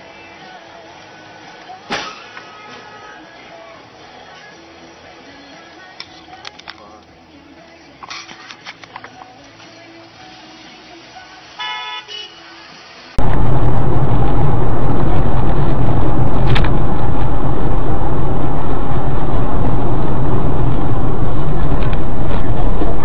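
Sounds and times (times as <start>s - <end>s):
car horn toots: 11.6s - 12.4s
loud distorted vehicle noise: 12.4s - 23.0s.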